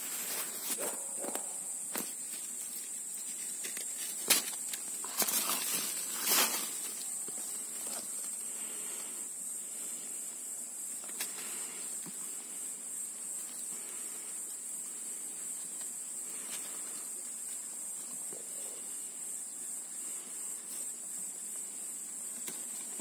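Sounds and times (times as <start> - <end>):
leaves rustling: 0.0 - 18.1
insects chirring: 0.0 - 23.0.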